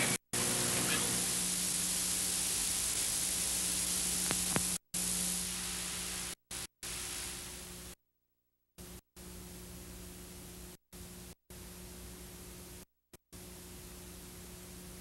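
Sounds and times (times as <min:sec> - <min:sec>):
steady hiss: 0:00.0 - 0:08.0.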